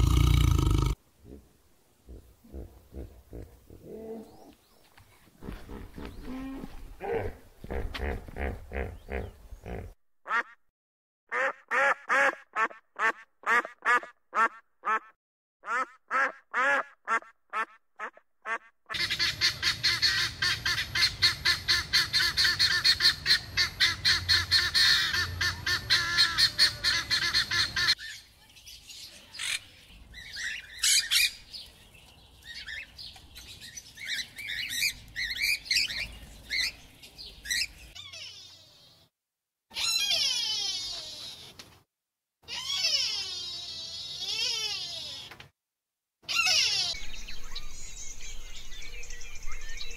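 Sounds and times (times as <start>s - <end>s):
scattered bird calls: 8.6s - 10.0s
duck honking calls: 11.3s - 28.0s
guineafowl cackling: 15.7s - 28.0s.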